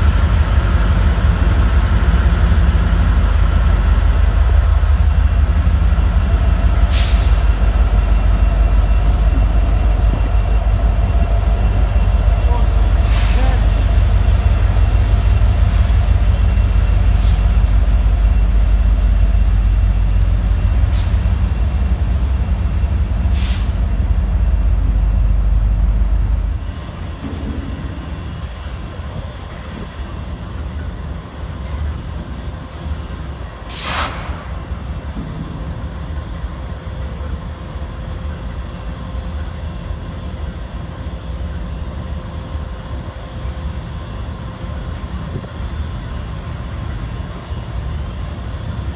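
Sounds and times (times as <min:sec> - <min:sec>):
diesel locomotive rumbling past: 0:00.0 - 0:48.9
idling locomotives humming: 0:00.0 - 0:48.9
burst of hiss: 0:33.7 - 0:34.4.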